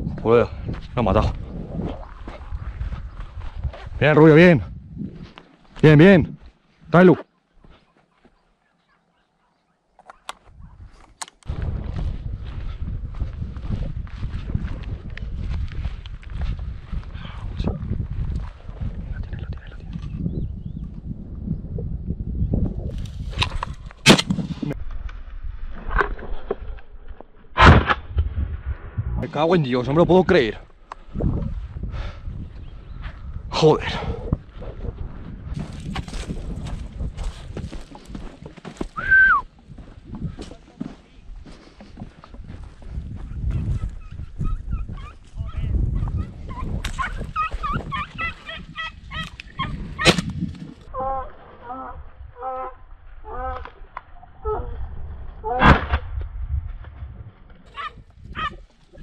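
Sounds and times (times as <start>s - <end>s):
low rumble from walking: 0.0s - 6.9s, 10.4s - 24.0s, 24.6s - 29.3s, 30.5s - 55.4s, 56.0s - 59.0s
footsteps on stony ground: 0.0s - 9.0s, 10.0s - 19.1s, 34.4s - 50.9s
shotgun shots: 24.0s - 24.5s, 50.0s - 50.3s
partridge clucking calls: 46.0s - 50.2s.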